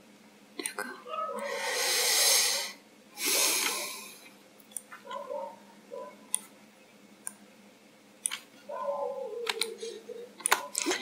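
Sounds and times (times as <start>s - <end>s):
heavy breaths: 1.4s - 4.3s
faint mouse clicks: 9.4s - 9.8s.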